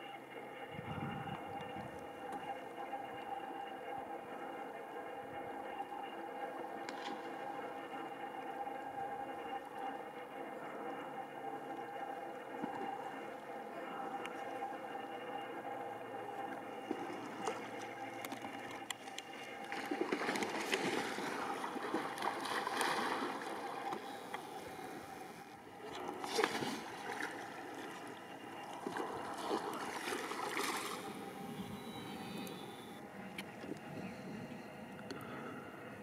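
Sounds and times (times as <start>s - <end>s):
water lapping against hull: 0.4s - 36.0s
paddle strokes splashing: 16.5s - 32.6s.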